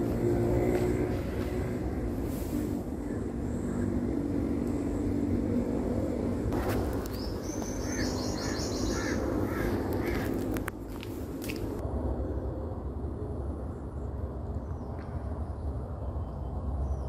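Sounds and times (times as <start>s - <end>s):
steady low rumble: 0.0s - 17.0s
rapid high bird chatter: 6.9s - 10.4s
short repeated bird calls: 7.2s - 10.3s.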